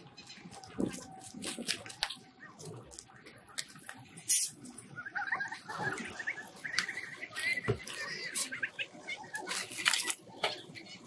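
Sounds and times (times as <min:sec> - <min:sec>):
footsteps crunching over debris: 0:00.1 - 0:04.9, 0:09.4 - 0:10.3.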